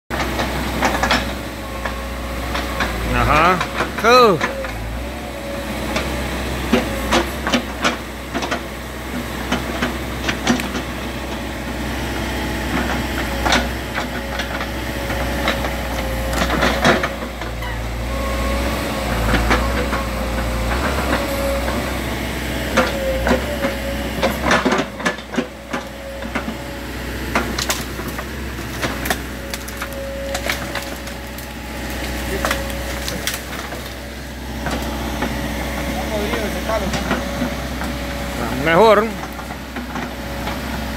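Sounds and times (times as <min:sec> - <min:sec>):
backhoe diesel engine rumbling: 0:00.1 - 0:40.9
wood cracking and breaking: 0:27.4 - 0:34.1.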